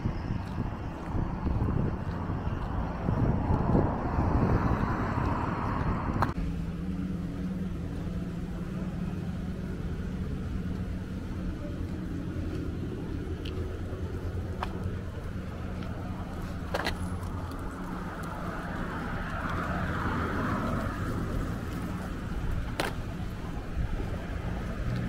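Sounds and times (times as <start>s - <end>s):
wind rushing: 0.0s - 6.4s
car engine humming: 0.0s - 25.0s
traffic noise: 0.0s - 25.0s.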